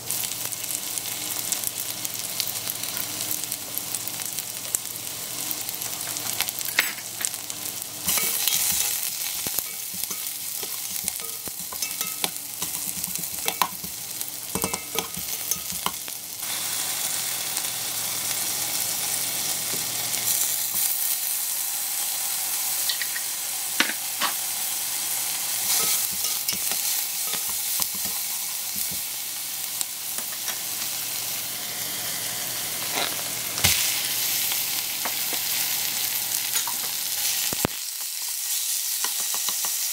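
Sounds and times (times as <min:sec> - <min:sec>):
food sizzling in hot oil: 0:00.0 - 0:39.9.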